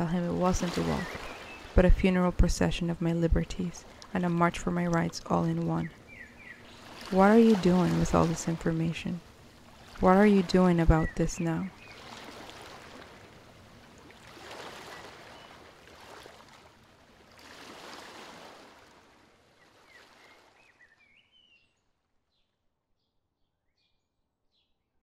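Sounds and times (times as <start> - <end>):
small waves washing onto shore: 0.0 - 2.3, 3.7 - 20.7.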